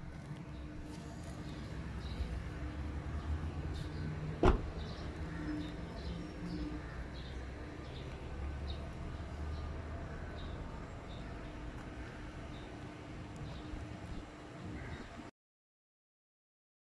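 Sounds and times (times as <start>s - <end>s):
small birds chirping: 0.1s - 15.1s
car door shutting: 4.4s - 4.8s.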